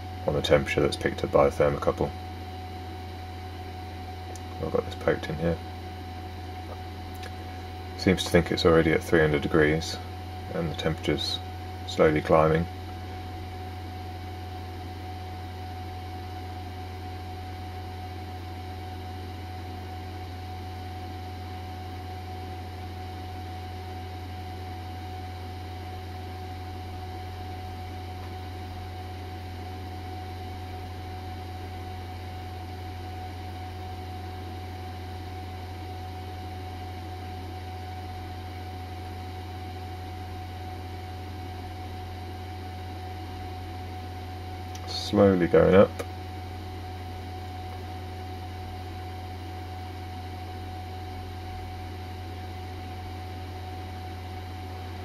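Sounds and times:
air pump humming: 0.0s - 15.4s
faint high whine: 0.0s - 55.0s.

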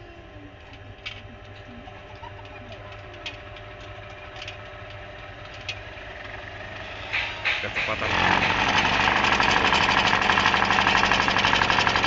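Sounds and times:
bench grinder motor humming: 8.0s - 12.0s.

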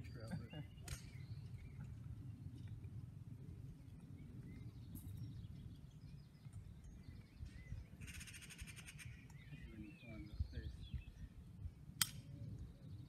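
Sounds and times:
wind on microphone: 3.5s - 13.0s.

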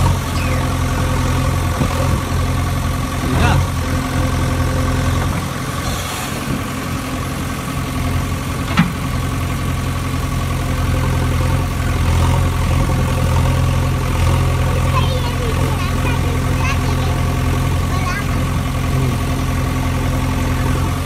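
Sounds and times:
engine idling: 0.0s - 21.0s.

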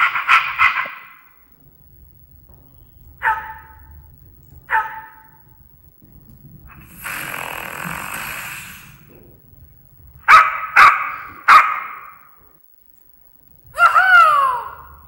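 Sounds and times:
dog barks from small speaker: 3.2s - 3.8s, 4.7s - 5.3s, 10.3s - 12.1s
rough hissing sound: 6.0s - 9.5s.

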